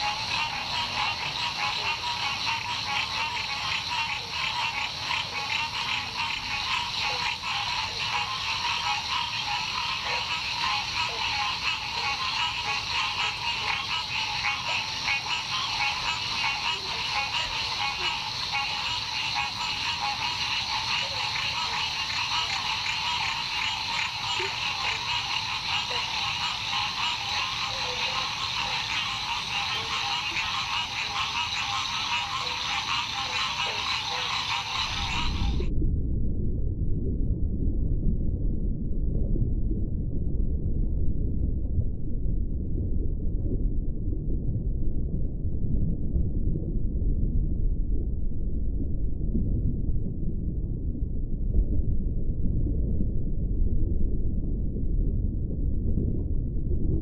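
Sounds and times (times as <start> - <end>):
frogs chorus: 0.0 - 35.7.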